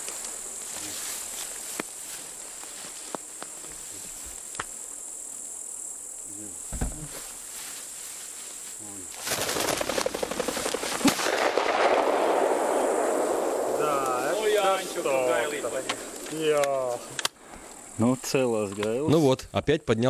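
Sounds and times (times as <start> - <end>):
crickets and insects buzzing: 0.0 - 20.0
pheasant wingbeats clattering: 9.2 - 11.2
shotgun shot: 11.0 - 14.2.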